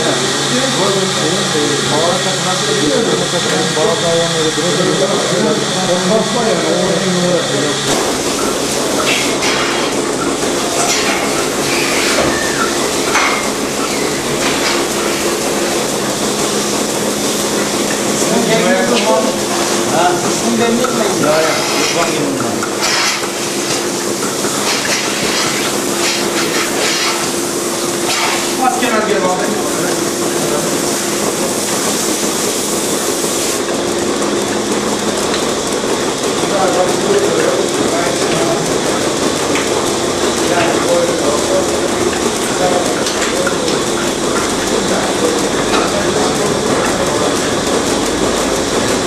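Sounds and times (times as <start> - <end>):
milking machinery hiss and hum: 0.0 - 49.0.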